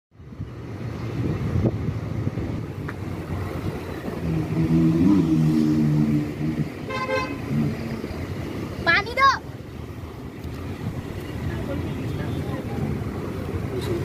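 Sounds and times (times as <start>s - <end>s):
vehicle road and engine rumble: 0.1s - 14.0s
wind on microphone: 0.2s - 8.7s
passing traffic drone: 0.2s - 14.0s
horn honk: 6.8s - 7.7s.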